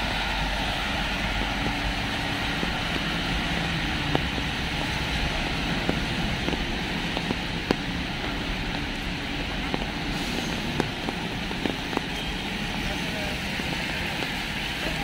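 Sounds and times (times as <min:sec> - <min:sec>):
low engine hum: 0:00.0 - 0:15.0
tyres hissing on wet road: 0:00.0 - 0:15.0
sharp ticks: 0:02.5 - 0:12.3.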